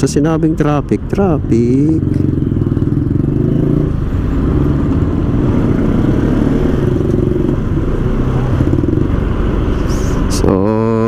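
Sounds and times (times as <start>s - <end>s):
road noise: 0.0s - 11.0s
motorcycle engine running: 1.3s - 9.6s.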